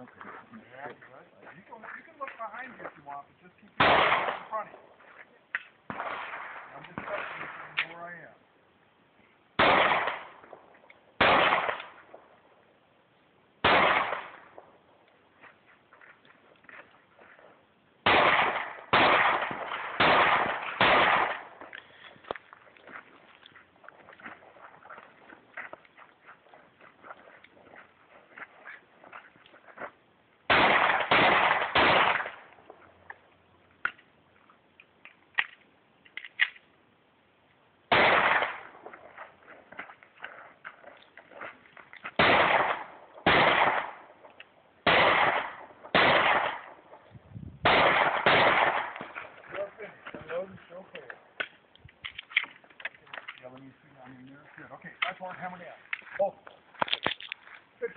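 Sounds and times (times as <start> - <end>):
pistol shots echoing: 3.8 - 4.9, 5.9 - 7.9, 9.6 - 12.3, 13.6 - 14.8, 18.0 - 21.7, 30.5 - 32.8, 37.9 - 39.2, 42.2 - 49.8.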